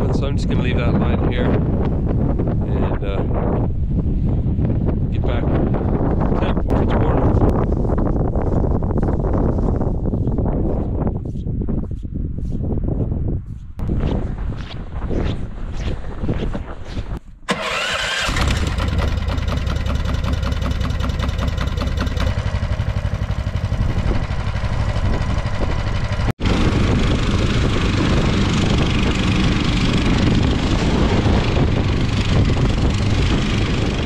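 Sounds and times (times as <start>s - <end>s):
small engine idling and running: 17.5s - 34.0s.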